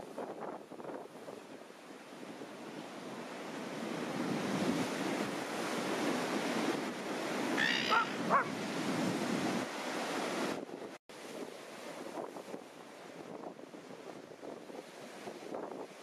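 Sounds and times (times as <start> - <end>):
surf washing up beach: 0.0 - 16.0
dog barks: 7.6 - 8.5.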